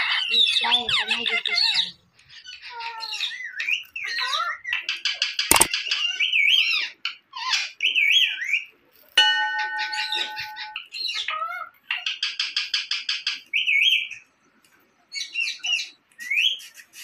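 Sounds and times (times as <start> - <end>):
sharp click: 5.5 - 5.7
bell-like chime: 9.2 - 10.9.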